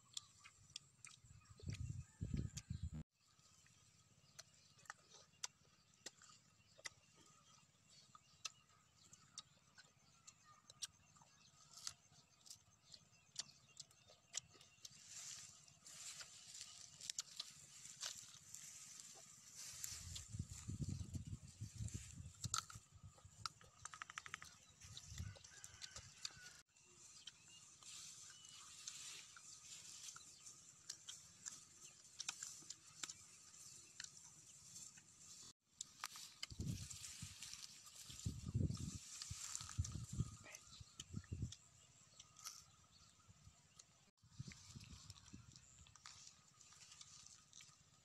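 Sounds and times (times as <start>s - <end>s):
crunchy chewing: 0.0s - 48.0s
crunches of biting mangoes: 22.3s - 26.6s.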